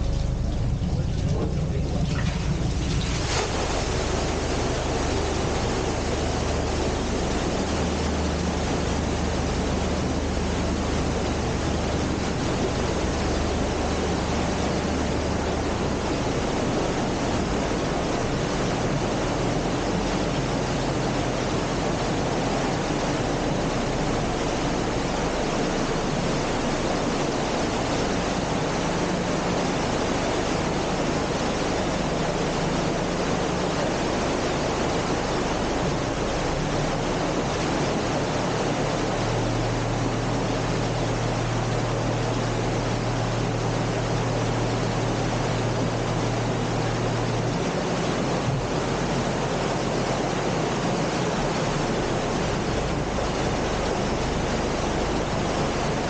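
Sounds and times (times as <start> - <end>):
faint low hum: 0.0 - 56.0
water gushing into lock: 0.0 - 56.0.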